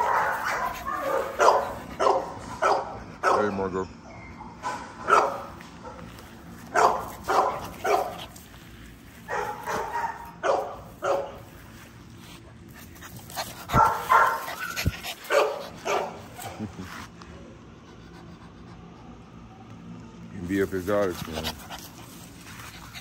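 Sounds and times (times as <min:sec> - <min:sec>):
dog barking: 0:00.0 - 0:03.6, 0:04.6 - 0:06.0, 0:06.7 - 0:08.3, 0:09.3 - 0:11.4, 0:13.7 - 0:16.3.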